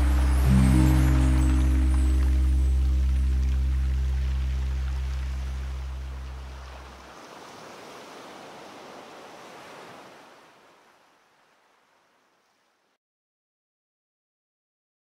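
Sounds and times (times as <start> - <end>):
low held music note: 0.0 - 7.0.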